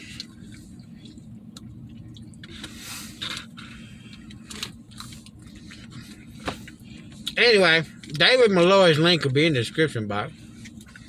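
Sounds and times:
people chewing: 0.0s - 7.4s, 10.4s - 11.0s
steady low hum: 0.0s - 11.0s.

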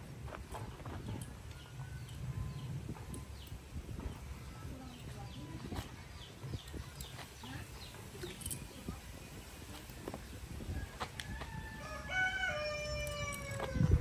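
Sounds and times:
rooster crowing: 10.8s - 14.0s.

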